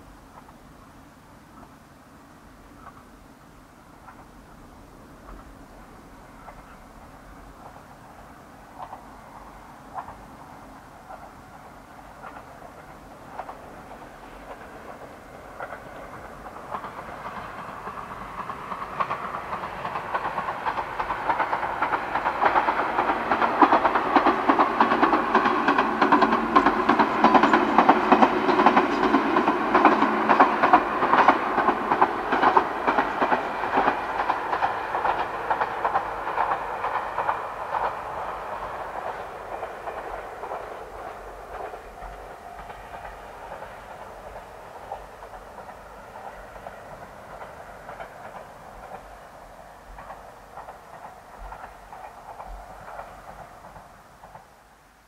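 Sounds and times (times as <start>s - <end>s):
train wheels clicking over rail joints: 6.4s - 54.6s.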